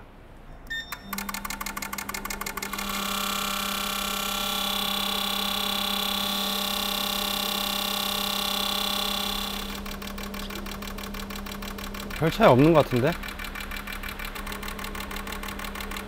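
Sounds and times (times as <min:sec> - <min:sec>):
short beep: 0:00.5 - 0:01.3
machine humming: 0:00.6 - 0:16.0
fuel injectors clicking: 0:01.1 - 0:16.0.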